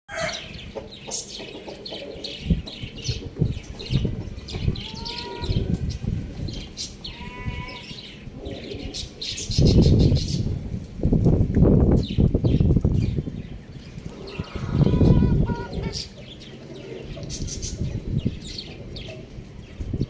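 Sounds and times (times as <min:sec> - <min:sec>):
small birds chirping: 0:00.1 - 0:20.0
hen calling: 0:04.6 - 0:06.0, 0:06.9 - 0:08.4, 0:14.0 - 0:16.2.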